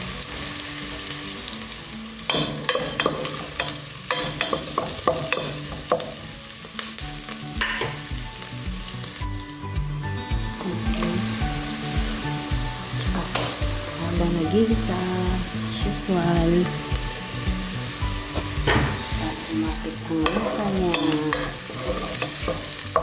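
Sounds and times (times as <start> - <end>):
onions sizzling in hot oil: 0.0 - 23.0
wooden spatula scraping a pot: 21.3 - 22.7.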